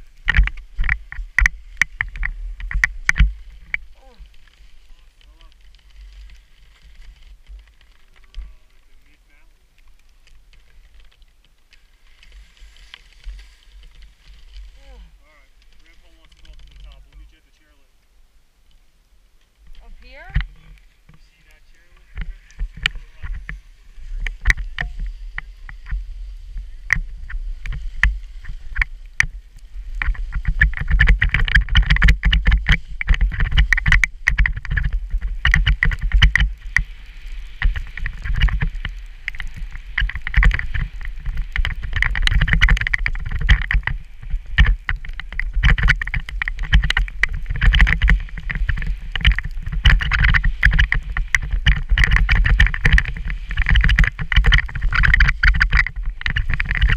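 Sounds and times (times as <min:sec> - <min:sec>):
skis scraping on snow: 0:00.0 - 0:17.9, 0:20.0 - 0:56.9
wind buffeting microphone: 0:21.4 - 0:56.9.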